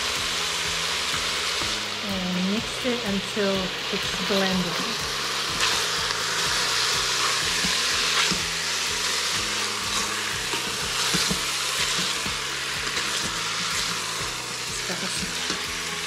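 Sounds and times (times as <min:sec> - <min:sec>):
meat sizzling in a pot: 0:00.0 - 0:16.0
spatula scraping a pot: 0:05.5 - 0:15.6.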